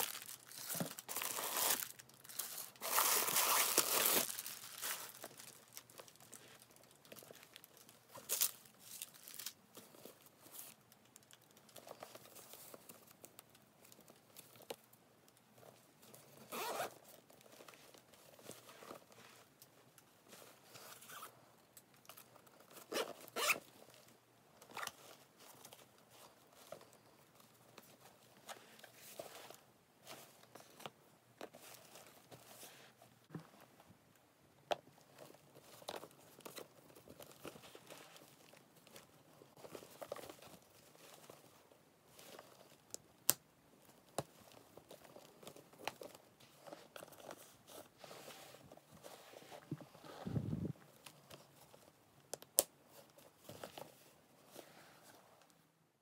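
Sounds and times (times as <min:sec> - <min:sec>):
fabric and leather rustling: 0:00.0 - 0:10.8, 0:15.5 - 0:21.4, 0:22.2 - 0:33.9, 0:34.9 - 0:42.9, 0:43.8 - 0:52.0
zipper pulls: 0:16.4 - 0:17.0, 0:20.7 - 0:21.3, 0:22.8 - 0:23.7.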